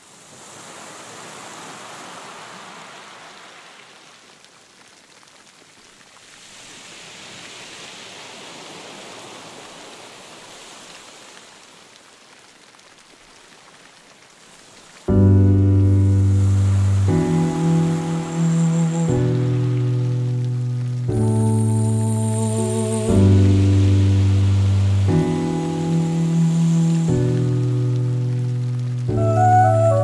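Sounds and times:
ocean surf breaking: 6.4s - 11.4s, 15.9s - 30.0s.

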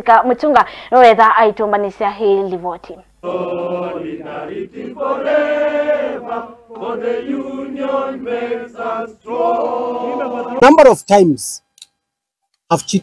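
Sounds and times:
group singing in unison: 3.2s - 10.6s.

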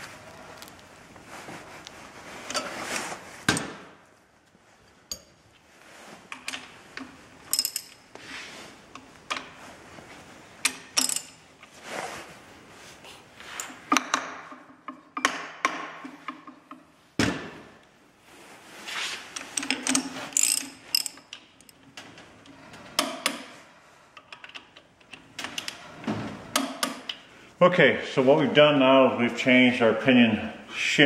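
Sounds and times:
ratchet wrench clicking: 19.5s - 21.4s.

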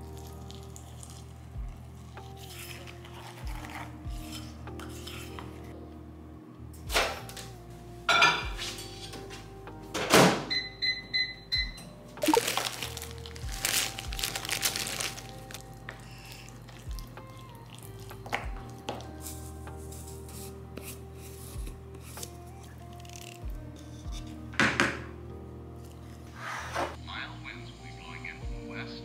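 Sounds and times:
lo-fi background music: 0.0s - 29.0s
microwave keypad beeps: 10.5s - 11.9s
rustling handling noise: 12.2s - 17.2s.

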